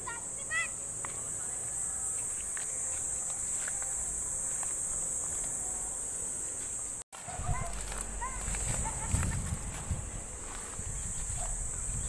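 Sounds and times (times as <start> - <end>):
insects buzzing: 0.0 - 12.0
wind rumbling on microphone: 7.2 - 12.0.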